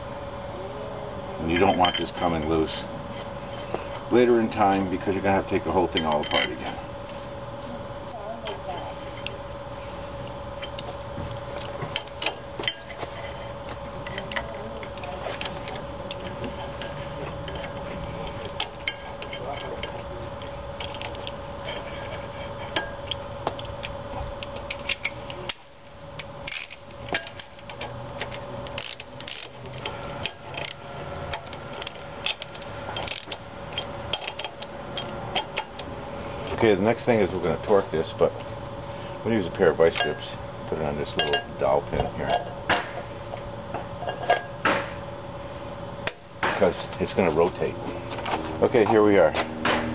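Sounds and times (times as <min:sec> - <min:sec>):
faint steady hum: 0:00.0 - 0:49.9.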